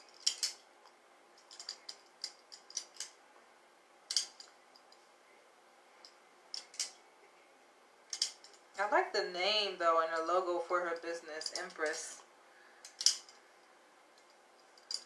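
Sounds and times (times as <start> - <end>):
metal bangle clinking: 0.0 - 0.7, 1.4 - 3.2, 4.1 - 4.9, 6.0 - 7.0, 8.1 - 8.7, 12.9 - 13.5, 14.2 - 15.0.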